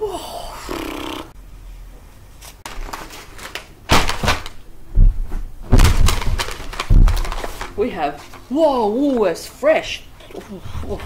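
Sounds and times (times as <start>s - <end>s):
rustling of tissues and packages: 2.6s - 4.6s, 5.7s - 9.0s
dull thumps on a couch: 4.9s - 6.1s.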